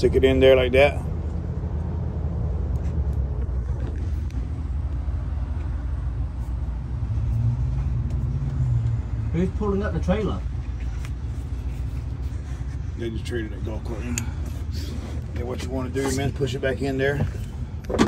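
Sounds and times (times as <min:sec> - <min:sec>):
vehicle engine rumbling: 0:00.0 - 0:18.0.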